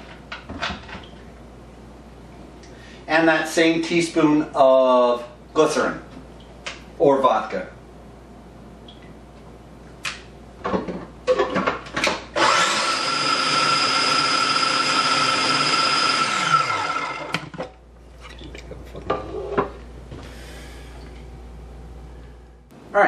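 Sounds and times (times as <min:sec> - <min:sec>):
food processor motor running: 0:12.4 - 0:17.4.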